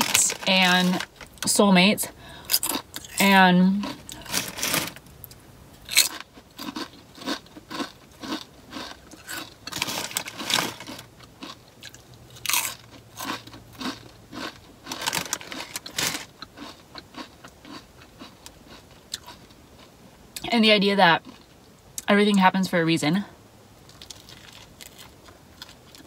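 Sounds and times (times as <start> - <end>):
chips being crunched and chewed: 0.0 - 1.5, 2.5 - 19.5, 23.9 - 26.0
foil bag crinkling: 0.0 - 1.5, 4.1 - 5.0, 9.2 - 11.1, 14.8 - 16.4, 23.9 - 25.8.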